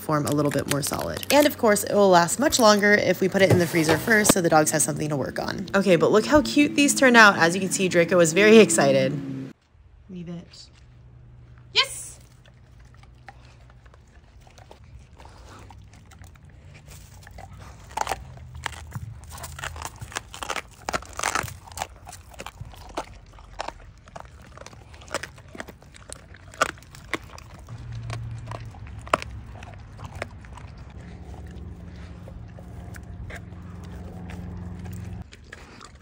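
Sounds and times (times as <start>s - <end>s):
dogs crunching food: 0.0s - 8.6s, 9.5s - 36.0s
dogs licking: 12.2s - 36.0s.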